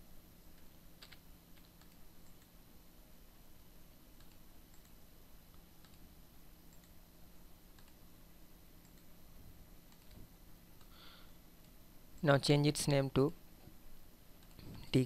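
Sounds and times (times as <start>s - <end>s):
low steady hum: 0.0s - 15.0s
computer mouse clicks: 0.5s - 2.5s, 4.2s - 6.0s, 6.7s - 7.0s, 7.7s - 8.0s, 8.8s - 9.1s, 9.9s - 10.9s, 14.4s - 14.8s
keyboard typing: 0.6s - 2.5s, 4.2s - 5.0s, 5.8s - 6.0s, 7.7s - 8.0s, 9.9s - 10.2s.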